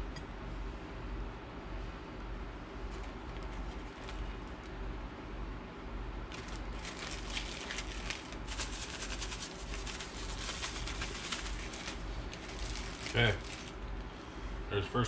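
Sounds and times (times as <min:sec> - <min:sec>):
plastic bag crinkling: 0:02.9 - 0:04.6, 0:06.3 - 0:13.8.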